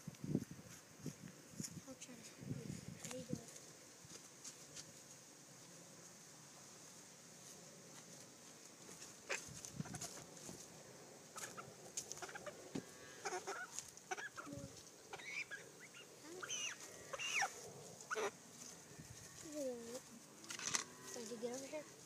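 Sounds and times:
chicken clucking: 9.2s - 10.4s, 11.3s - 12.6s, 13.2s - 18.4s.

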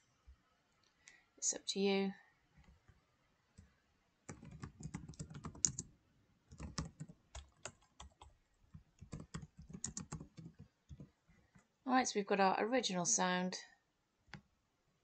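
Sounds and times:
typing on keyboard: 4.3s - 5.9s, 6.5s - 11.1s.

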